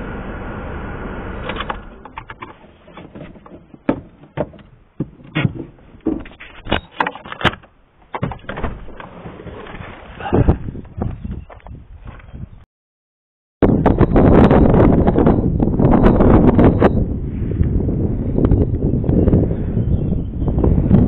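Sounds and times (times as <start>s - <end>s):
clicks and knocks inside car: 2.1s - 9.1s.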